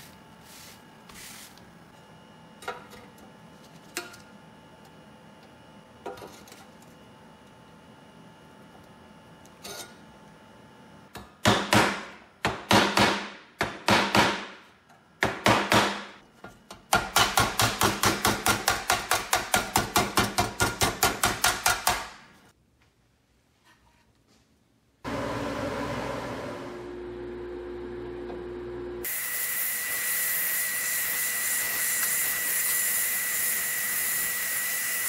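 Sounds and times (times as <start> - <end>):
hammer striking wood on metal: 11.2 - 14.6, 15.2 - 16.2, 16.9 - 22.3.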